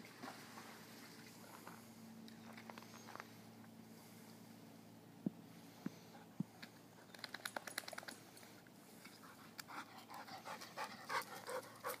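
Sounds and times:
puppy panting: 9.2 - 12.0.

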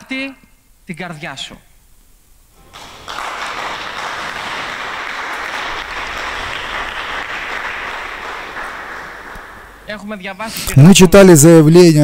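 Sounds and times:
congregation applauding: 2.6 - 10.0.

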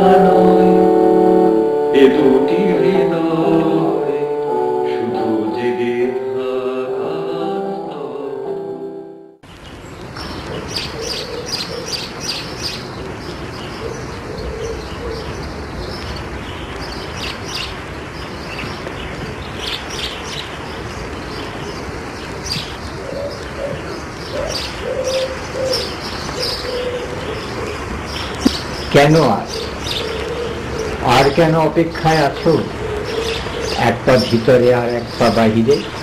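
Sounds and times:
small birds chirping: 9.5 - 36.0
bird cooing: 11.0 - 12.0, 23.1 - 27.8, 29.4 - 31.0, 32.4 - 33.8.

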